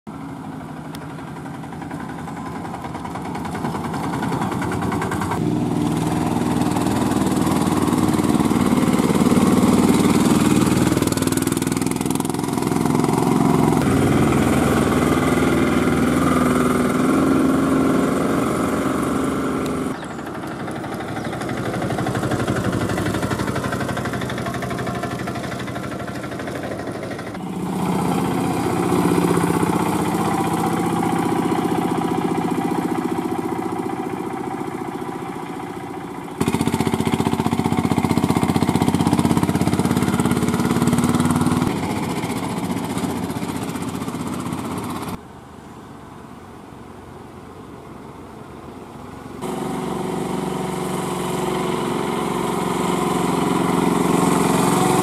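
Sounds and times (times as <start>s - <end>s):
auto rickshaw engine driving by: 0.1s - 55.0s.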